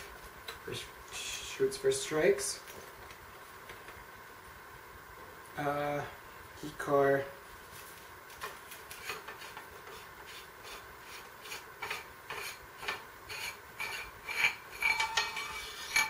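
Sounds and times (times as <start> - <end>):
threads scraping and rubbing: 7.6 - 16.0.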